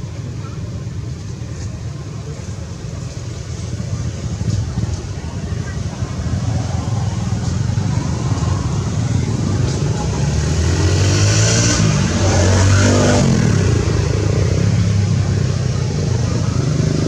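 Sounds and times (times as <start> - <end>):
steady low rumble: 0.0 - 16.7
vehicle engine passing by: 4.0 - 17.0.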